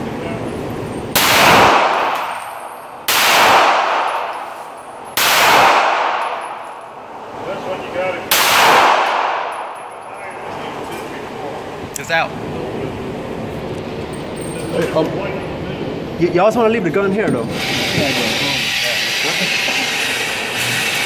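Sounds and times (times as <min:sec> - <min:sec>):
pistol shots echoing indoors: 0:01.1 - 0:07.1, 0:08.3 - 0:10.0.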